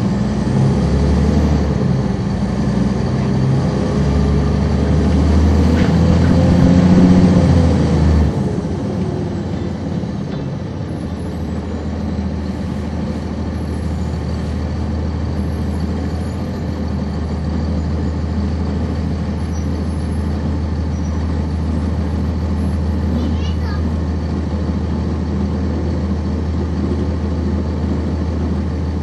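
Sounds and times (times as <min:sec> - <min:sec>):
bus diesel engine idling: 0:00.0 - 0:29.0
low hum: 0:04.3 - 0:10.4.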